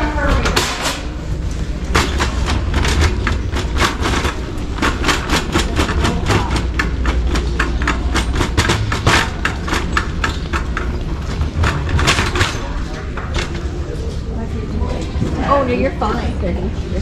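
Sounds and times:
cart rattling and clattering: 0.0s - 14.2s
cart wheels rolling rumble: 1.3s - 14.3s.

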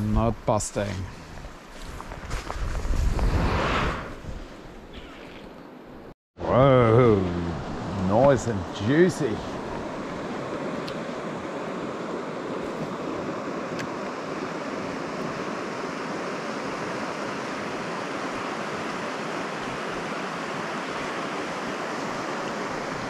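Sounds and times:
river water rushing: 6.4s - 23.0s.

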